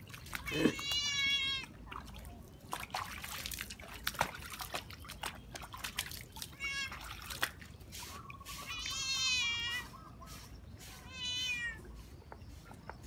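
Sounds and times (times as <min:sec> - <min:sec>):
cat meowing: 0:00.5 - 0:01.7, 0:11.0 - 0:11.8.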